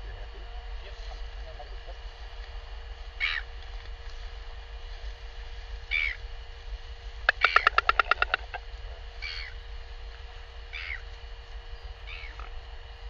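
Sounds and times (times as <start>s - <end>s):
bird crying: 3.2s - 3.6s, 5.8s - 6.3s, 7.3s - 9.7s, 10.6s - 11.1s, 11.7s - 12.6s
bird bill clacking: 7.2s - 9.6s.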